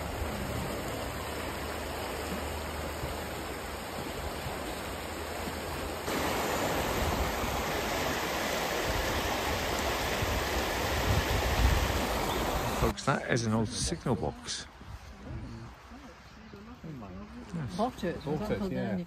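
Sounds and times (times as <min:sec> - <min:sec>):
river water rushing over stones: 0:00.0 - 0:14.3.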